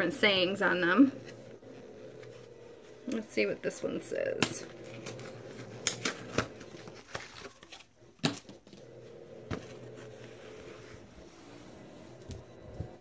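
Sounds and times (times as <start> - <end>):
faint steady hum: 0.0 - 13.0
packaging and cloth rustling: 4.6 - 8.9.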